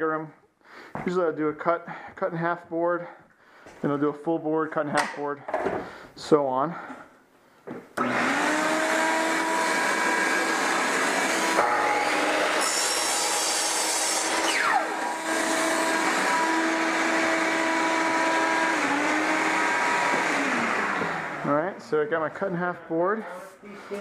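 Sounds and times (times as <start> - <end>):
miter saw cutting wood: 8.0 - 21.8.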